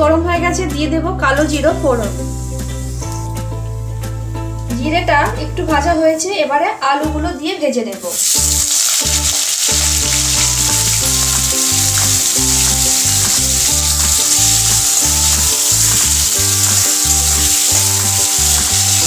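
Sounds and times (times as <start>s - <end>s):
background music: 0.0s - 19.0s
potato sticks sizzling in oil: 8.0s - 19.0s
spatula stirring: 8.2s - 19.0s.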